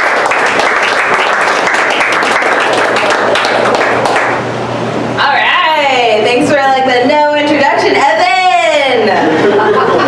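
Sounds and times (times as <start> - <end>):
audience applause: 0.0 - 4.4.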